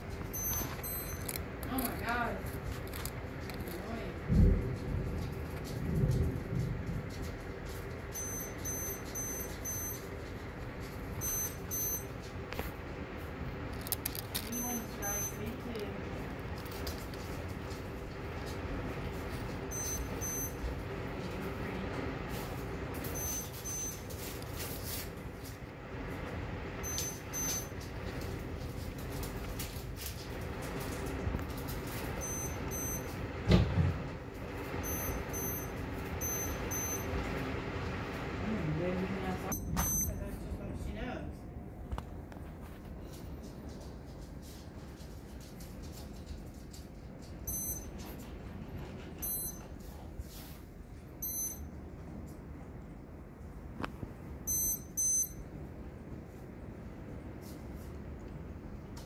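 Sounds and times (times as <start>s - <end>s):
lightning detector beeping: 0.0s - 3.8s, 7.7s - 10.4s, 11.0s - 12.4s, 13.7s - 16.0s, 18.4s - 20.9s, 22.3s - 25.5s, 26.6s - 28.0s, 31.0s - 33.6s, 34.4s - 37.2s, 39.5s - 40.5s, 47.4s - 48.1s, 49.2s - 49.8s, 51.2s - 51.8s, 54.4s - 55.5s.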